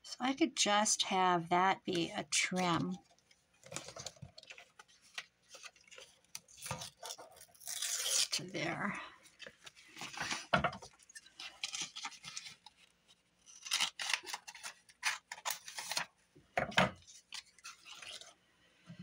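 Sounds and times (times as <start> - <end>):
scissors cutting paper: 13.5 - 16.0.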